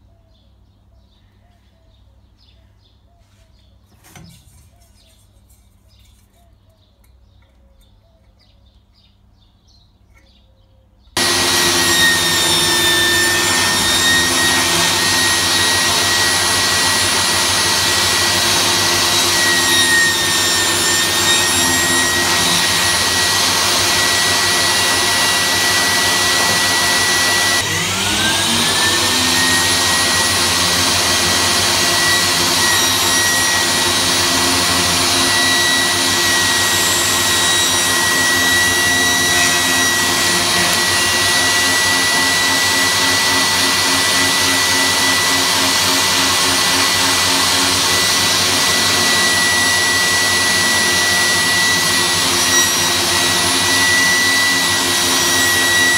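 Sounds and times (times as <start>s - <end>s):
table saw motor whining: 11.2s - 55.9s.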